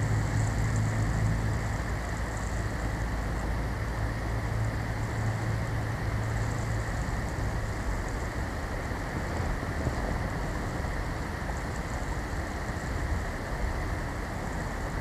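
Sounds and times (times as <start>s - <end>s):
rush of wind: 0.0s - 15.0s
steady low hum: 0.0s - 15.0s
wind buffeting microphone: 7.4s - 13.9s.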